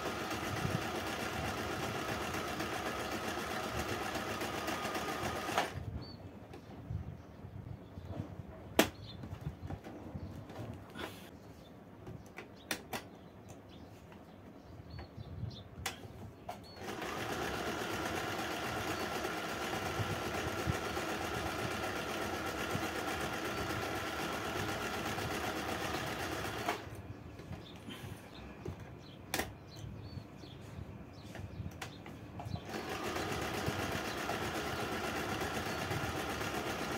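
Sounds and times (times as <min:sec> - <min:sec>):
sewing machine running: 0:00.0 - 0:05.8, 0:16.8 - 0:27.0, 0:32.6 - 0:36.9.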